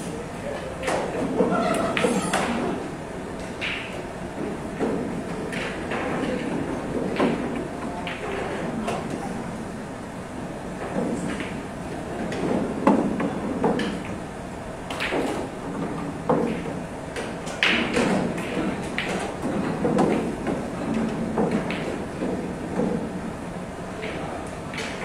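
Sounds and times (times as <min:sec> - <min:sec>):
sharp knocks of pool balls: 0:04.7 - 0:09.1, 0:12.2 - 0:14.2, 0:14.9 - 0:23.1.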